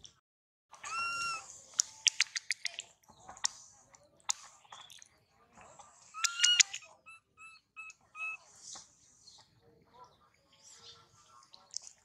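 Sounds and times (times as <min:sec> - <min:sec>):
monkey squeaky call: 0:00.7 - 0:01.5, 0:06.1 - 0:08.4
monkey chewing clicks: 0:01.8 - 0:02.8.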